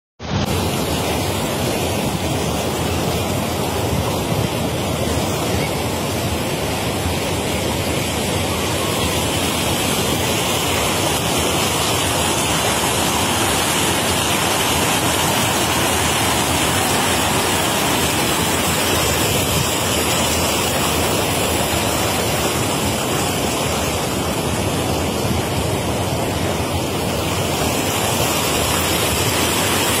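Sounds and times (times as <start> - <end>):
river water over rapids: 0.2 - 30.0.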